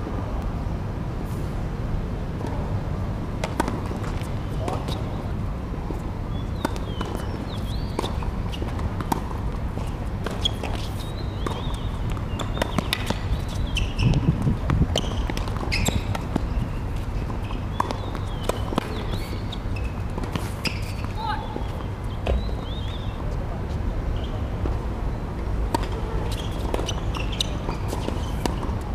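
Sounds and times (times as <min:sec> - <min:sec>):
tennis ball bounces: 0:03.3 - 0:05.2, 0:05.8 - 0:22.9, 0:25.6 - 0:28.9.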